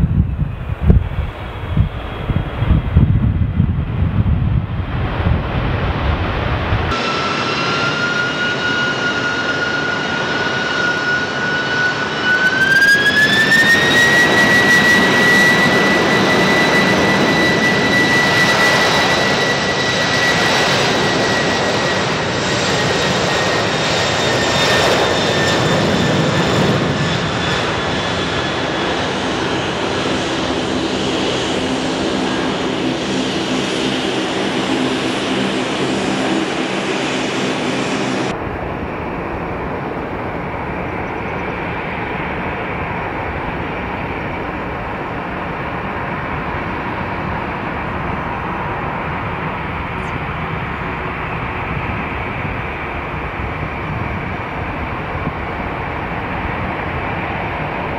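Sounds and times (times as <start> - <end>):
jet engines spooling up: 4.9 - 50.7.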